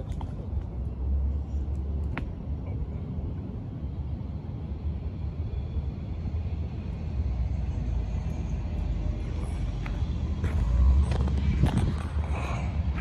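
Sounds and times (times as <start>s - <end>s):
wind buffeting microphone: 9.3s - 13.0s.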